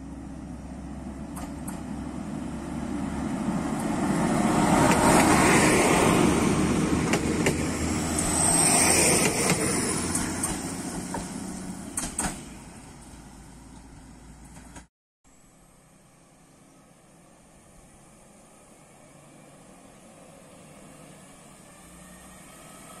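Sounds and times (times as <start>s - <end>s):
passenger train passing: 0.0s - 14.6s, 15.8s - 23.0s
sharp train clicks: 1.3s - 2.0s, 4.7s - 5.4s, 6.7s - 12.5s.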